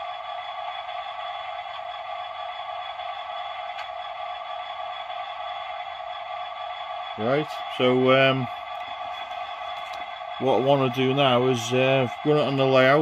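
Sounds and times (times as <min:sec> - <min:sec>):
diesel engine hum through speaker: 0:07.1 - 0:13.0.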